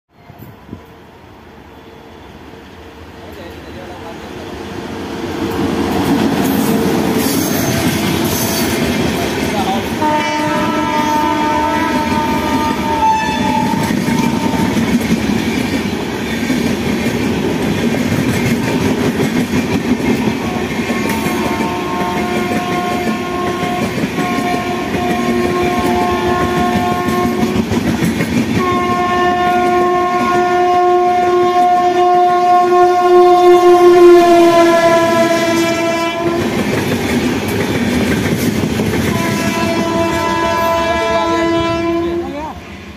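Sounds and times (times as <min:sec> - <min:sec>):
train wheels clacking on track: 0:04.7 - 0:30.4, 0:34.4 - 0:41.0
locomotive air horn blasts: 0:10.0 - 0:14.8, 0:20.5 - 0:27.6, 0:28.6 - 0:36.5, 0:39.1 - 0:42.2.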